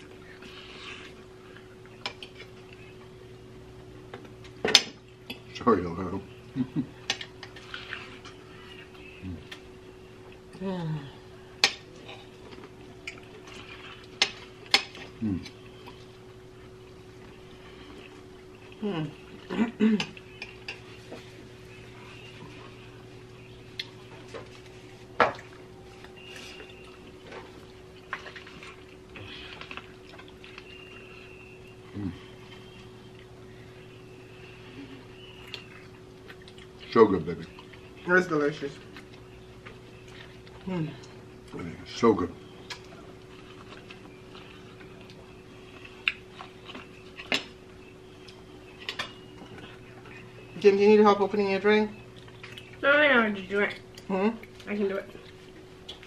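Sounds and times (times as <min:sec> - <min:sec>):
steady low hum: 0:00.0 - 0:56.0
chewing smacks: 0:23.6 - 0:33.4, 0:35.2 - 0:38.0, 0:42.4 - 0:50.6, 0:52.0 - 0:52.8, 0:53.7 - 0:56.0
wet chewing and biting: 0:42.4 - 0:50.5, 0:52.0 - 0:52.8.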